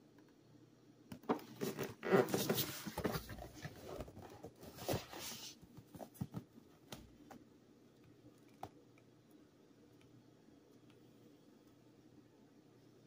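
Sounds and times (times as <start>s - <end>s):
cardboard box rustling: 1.4s - 6.5s.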